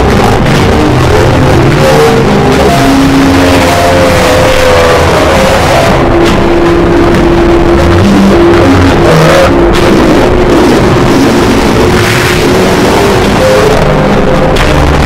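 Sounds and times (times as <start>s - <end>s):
heavily distorted music: 0.0s - 15.0s.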